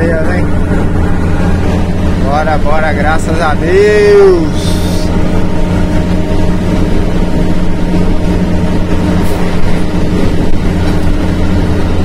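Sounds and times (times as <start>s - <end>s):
truck diesel engine droning: 0.0s - 12.0s.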